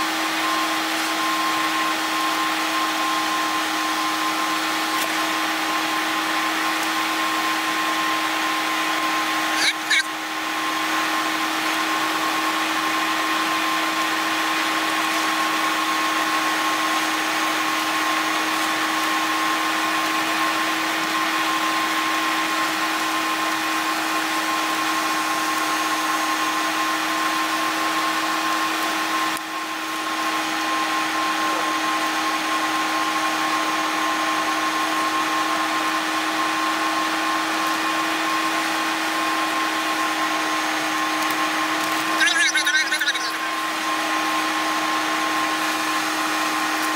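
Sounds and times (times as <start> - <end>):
thin steady whine: 42.1 - 44.8.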